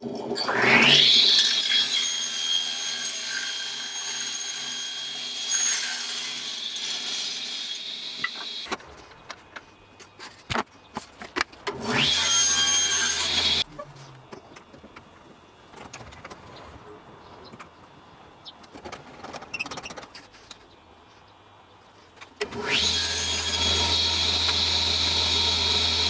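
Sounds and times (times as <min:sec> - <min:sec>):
table saw ripping a board: 0:00.4 - 0:08.7, 0:11.7 - 0:13.6, 0:22.4 - 0:26.0.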